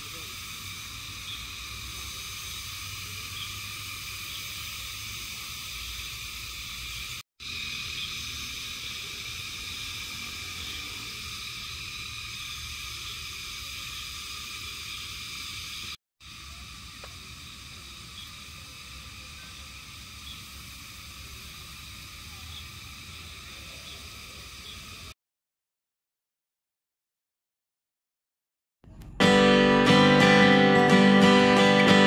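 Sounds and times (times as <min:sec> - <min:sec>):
frogs calling: 0:00.0 - 0:25.1
insects calling: 0:00.0 - 0:25.2.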